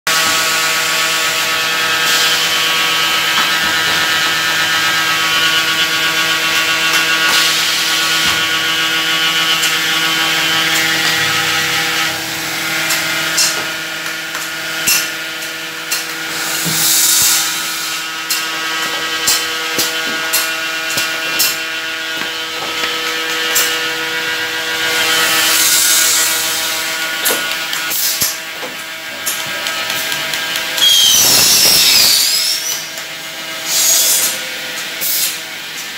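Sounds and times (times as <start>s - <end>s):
machine whirring: 0.1s - 35.9s
welding machine humming: 0.1s - 35.9s
compressed air hissing: 16.3s - 18.0s, 30.8s - 32.9s, 33.7s - 34.4s
pneumatic clamps clicking: 27.2s - 33.1s, 33.7s - 35.9s.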